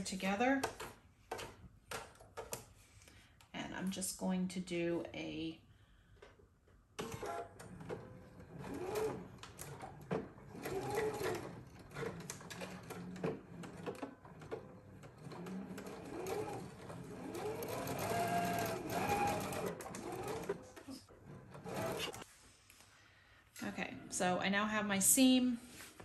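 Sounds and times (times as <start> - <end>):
sewing machine stitching: 7.0 - 22.2.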